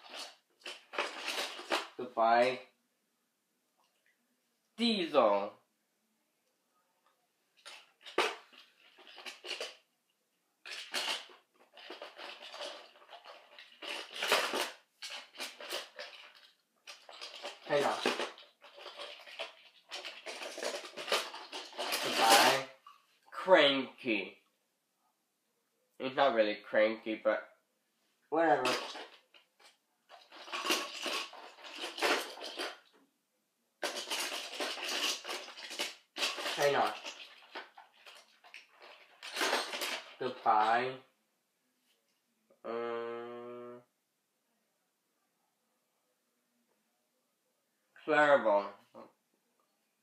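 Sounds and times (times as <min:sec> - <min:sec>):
toy trains clattering: 0:00.0 - 0:02.0, 0:07.6 - 0:09.8, 0:10.7 - 0:22.7, 0:28.6 - 0:33.0, 0:33.8 - 0:40.8.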